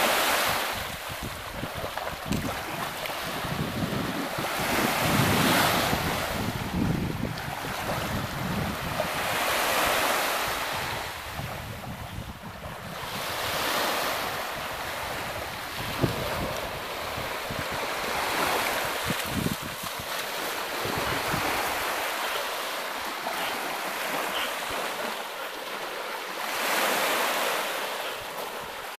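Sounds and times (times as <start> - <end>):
waves washing onto shore: 0.0 - 29.0
wind rumbling on microphone: 0.4 - 22.1.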